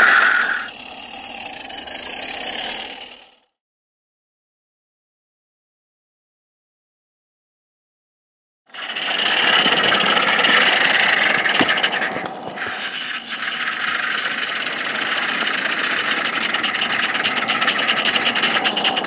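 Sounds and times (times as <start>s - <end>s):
steam locomotives hissing and chuffing: 0.0s - 3.3s, 8.7s - 19.0s.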